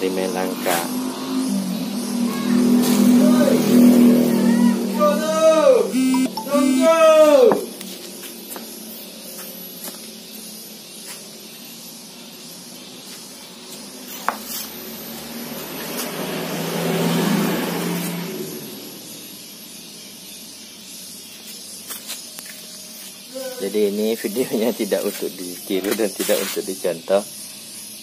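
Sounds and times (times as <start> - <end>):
vehicle engine passing by: 0.0 - 5.2, 14.5 - 19.3.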